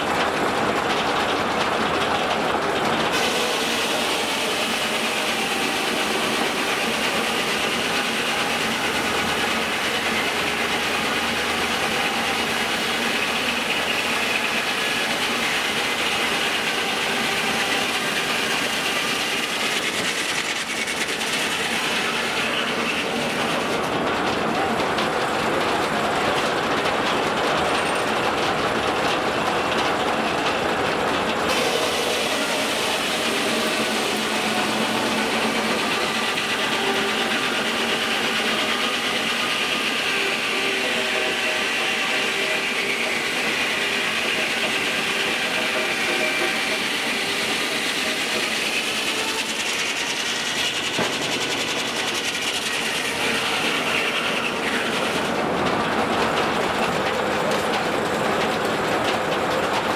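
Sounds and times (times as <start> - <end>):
log carriage rattling on track: 0.0 - 59.9.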